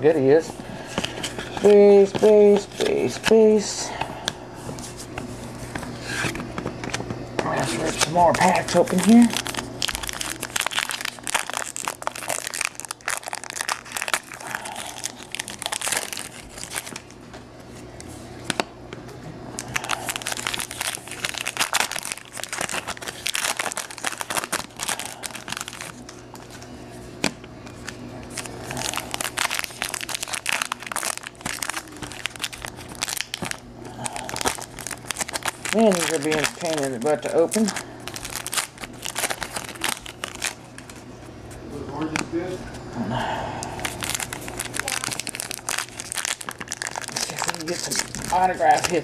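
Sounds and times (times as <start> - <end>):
foil wrappers tearing and crinkling: 7.5 - 17.2, 19.6 - 26.6, 27.7 - 41.0, 43.8 - 49.0.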